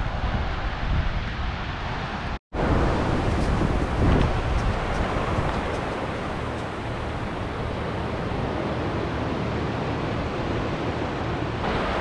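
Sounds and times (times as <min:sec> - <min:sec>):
surf waves washing over sand: 0:00.0 - 0:12.0.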